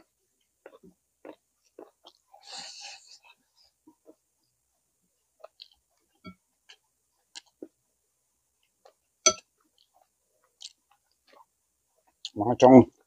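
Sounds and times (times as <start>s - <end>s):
tableware clinking: 9.3s - 9.5s.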